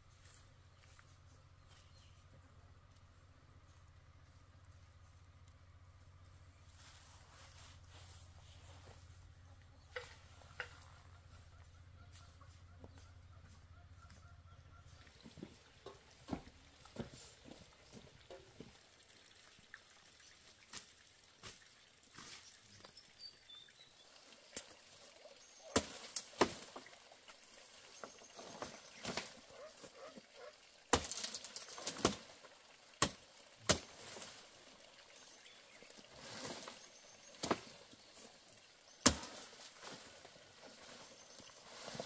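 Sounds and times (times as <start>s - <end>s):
leaves rustling: 2.8s - 12.4s, 20.6s - 42.0s
blade chopping bamboo: 25.7s - 26.7s, 30.9s - 32.3s, 33.0s - 34.1s, 39.0s - 39.6s.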